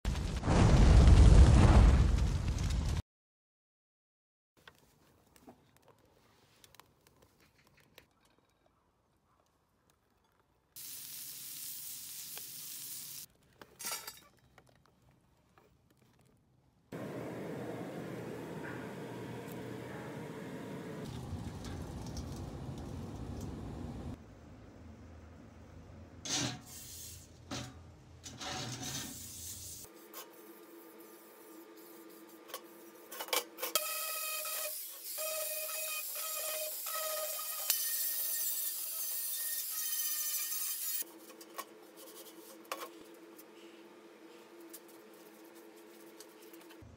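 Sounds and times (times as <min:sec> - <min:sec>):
meat sizzling on a grill: 0:10.8 - 0:13.3
metal can scraping on workbench: 0:27.5 - 0:29.3.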